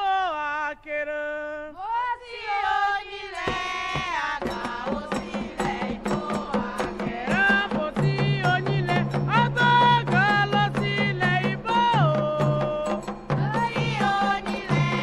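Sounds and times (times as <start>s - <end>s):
rhythmic percussion: 2.6s - 15.0s
woman singing: 13.3s - 15.0s.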